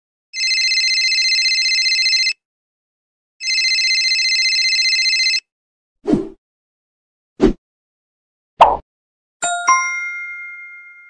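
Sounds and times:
telephone ringing: 0.4 - 2.4, 3.4 - 5.5, 9.4 - 11.0.

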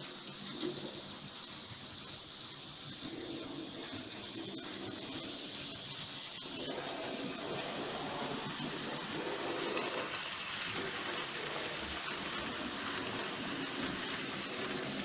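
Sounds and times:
model train rattling on track: 0.0 - 15.0.

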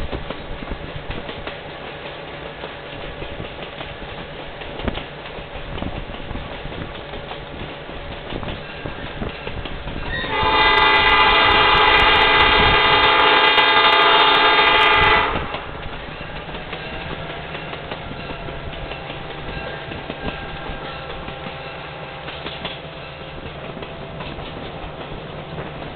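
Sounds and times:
train running rumble: 0.0 - 25.9
locomotive air horn: 10.1 - 15.5.

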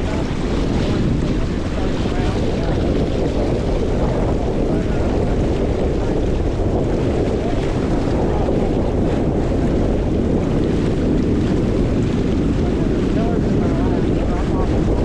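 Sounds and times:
water rushing past hull: 0.0 - 15.0
wind buffeting microphone: 0.0 - 15.0.

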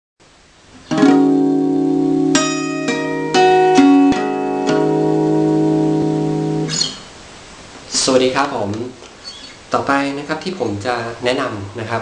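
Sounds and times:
acoustic guitar fingerpicked: 0.8 - 7.1.

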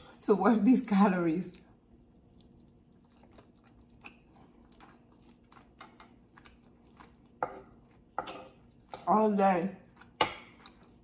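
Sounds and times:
faint steady hum: 0.0 - 11.0
wet chewing: 1.5 - 9.1, 9.8 - 11.0.

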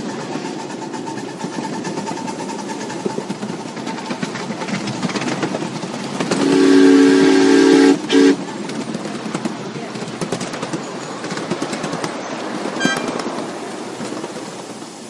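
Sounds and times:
train wheels clicking over rails: 0.0 - 15.0
locomotive whistle chord: 6.4 - 8.4, 12.8 - 13.2.

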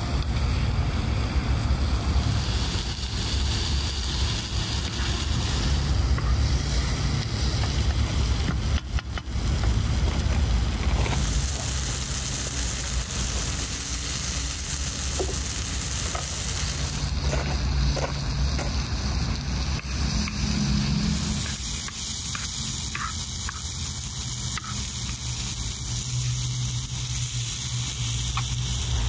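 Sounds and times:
low steady rumble: 0.0 - 29.0
vegetables sizzling in a pan: 0.0 - 29.0
spatula scraping pan: 22.3 - 23.8.

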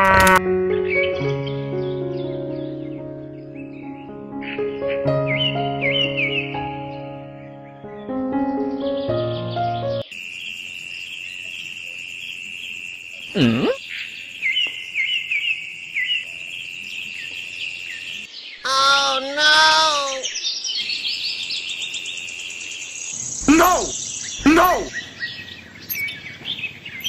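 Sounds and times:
bird chirps: 8.5 - 27.0
insect trill: 10.0 - 18.4, 20.8 - 26.2
goat bleating: 18.7 - 20.2, 23.4 - 24.9.

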